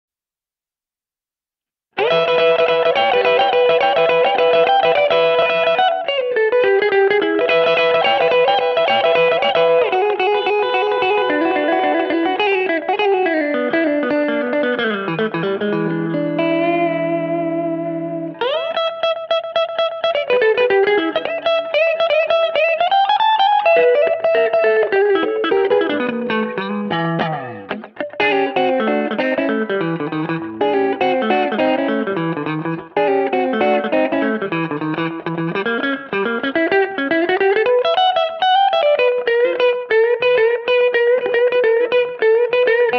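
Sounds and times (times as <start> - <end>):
rockabilly electric guitar: 2.0 - 42.9.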